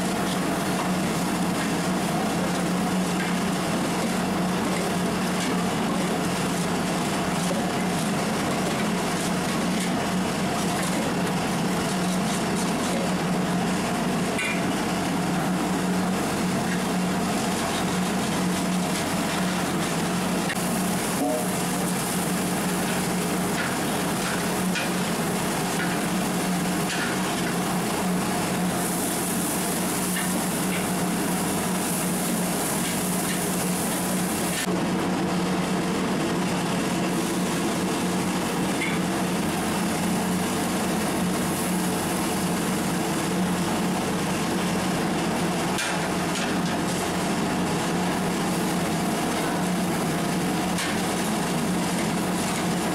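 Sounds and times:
food sizzling in a metal pot: 0.1 - 34.7, 37.1 - 44.7, 45.4 - 52.9.

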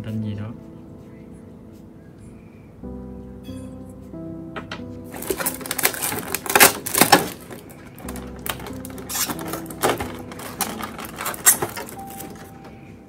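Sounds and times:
background music: 0.0 - 13.0
plastic packaging crinkling: 5.1 - 12.9.

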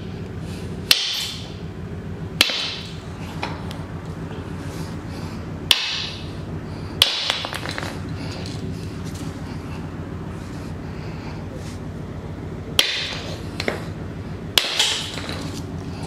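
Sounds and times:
hammer striking resin on concrete: 0.9 - 1.4, 2.4 - 2.9, 5.7 - 6.2, 7.0 - 7.9, 12.8 - 13.8, 14.6 - 15.4.

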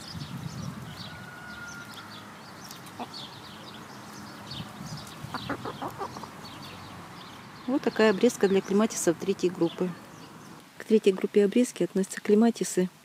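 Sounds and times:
small birds chirping: 0.0 - 12.8
hen clucking: 2.7 - 3.3, 5.0 - 6.7.

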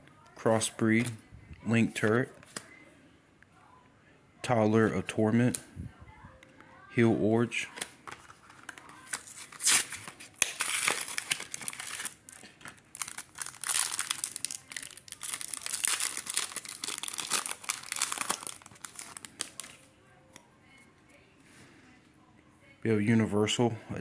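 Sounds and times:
foil wrapper crinkling and tearing: 7.7 - 19.9.

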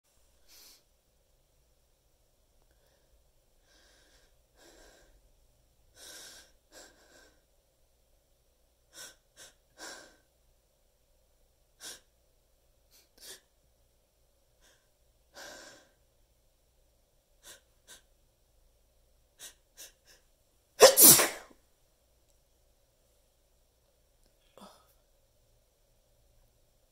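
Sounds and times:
loud sneeze: 20.8 - 21.6.

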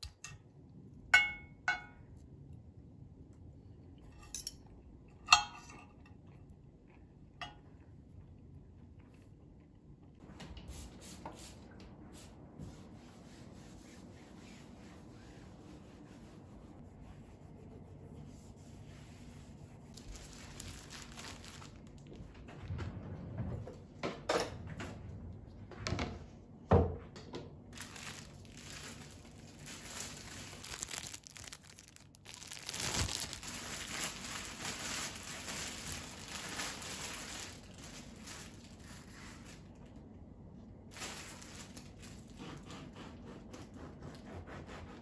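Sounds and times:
plastic bread bag crinkling: 19.9 - 22.2, 27.8 - 40.0, 40.9 - 42.4.

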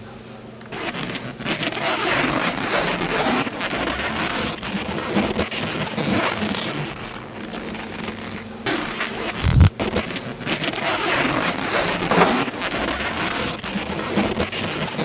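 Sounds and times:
nylon fabric rustling and crinkling: 0.8 - 15.0.

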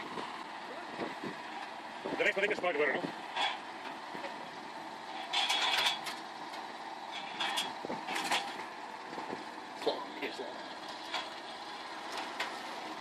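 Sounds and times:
tractor engine running: 0.0 - 13.0
metal clatter from boom arm: 5.2 - 6.2, 7.1 - 8.6.

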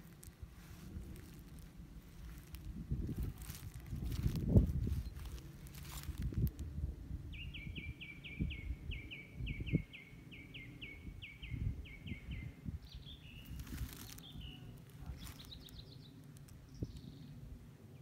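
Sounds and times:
low rumbling: 0.0 - 9.7
songbird whistling: 7.3 - 16.0.

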